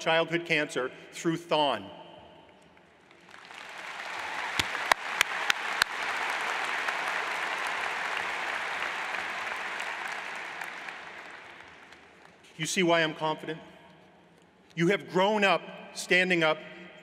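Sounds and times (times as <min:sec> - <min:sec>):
sharp close claps: 0:02.7 - 0:12.6
audience applauding: 0:03.1 - 0:12.4.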